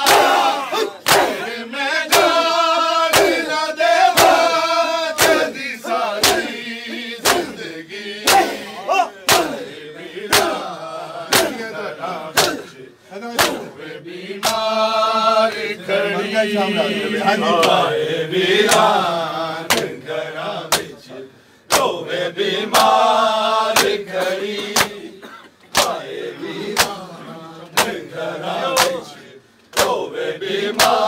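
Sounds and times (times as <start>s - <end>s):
chest beating slaps: 0.0s - 1.5s, 2.1s - 2.4s, 3.1s - 3.5s, 4.1s - 4.5s, 5.2s - 6.6s, 7.2s - 7.6s, 8.2s - 9.7s, 10.3s - 10.6s, 11.3s - 11.7s, 12.3s - 12.7s, 13.3s - 13.8s, 19.7s - 20.0s, 20.7s - 21.0s, 21.7s - 22.0s, 26.7s - 27.0s
men chanting in unison: 0.0s - 31.0s.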